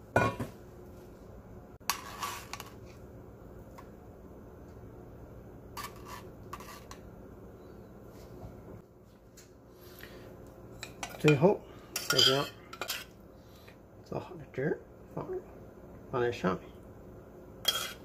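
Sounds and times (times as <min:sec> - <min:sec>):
low steady hum: 0:00.0 - 0:18.0
metal tongs clinking on plate: 0:12.0 - 0:13.0.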